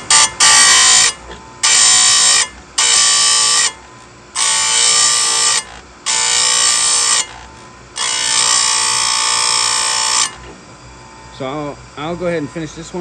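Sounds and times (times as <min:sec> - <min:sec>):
grinding wheel whining on chain: 0:04.4 - 0:07.4, 0:08.0 - 0:10.4.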